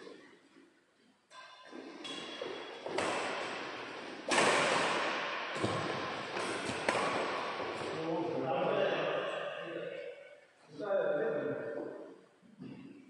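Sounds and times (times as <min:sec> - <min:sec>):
badminton racket hitting shuttlecock: 0:01.7 - 0:08.0.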